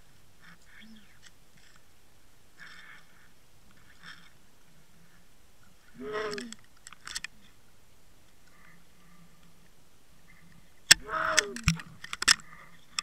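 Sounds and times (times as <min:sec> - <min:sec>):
faint hiss: 0:00.0 - 0:13.0
muffled voice-like call: 0:00.4 - 0:01.2, 0:06.0 - 0:06.6, 0:11.0 - 0:11.7
sharp clicks: 0:10.9 - 0:13.0.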